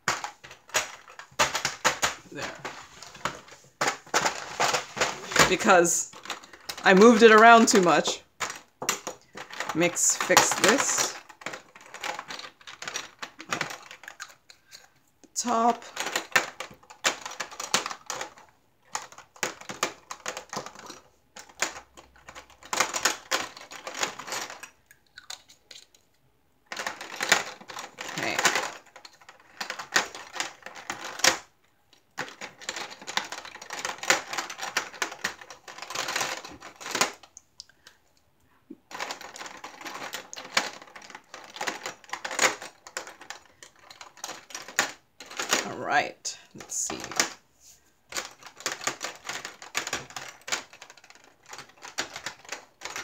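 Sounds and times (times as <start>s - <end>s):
plastic jars clicking: 0.0s - 26.0s, 48.1s - 53.0s.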